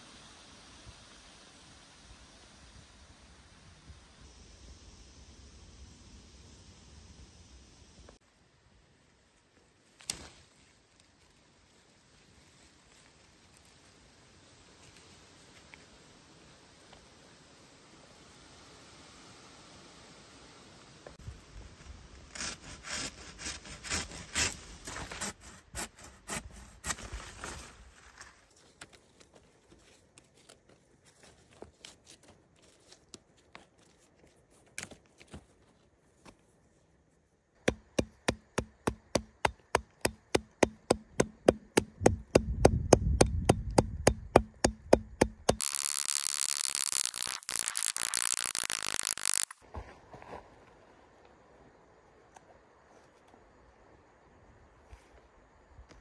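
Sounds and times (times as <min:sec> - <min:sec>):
sharp regular cutting strokes: 0:45.2 - 0:49.6
bark tearing off a pole: 0:45.5 - 0:49.6
rustling leafy branch: 0:45.5 - 0:50.6.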